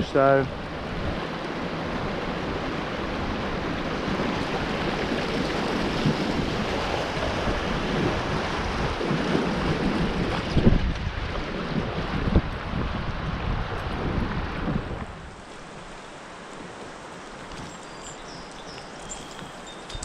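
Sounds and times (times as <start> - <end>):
wind buffeting microphone: 0.0 - 20.0
river water rushing over rocks: 0.1 - 12.8.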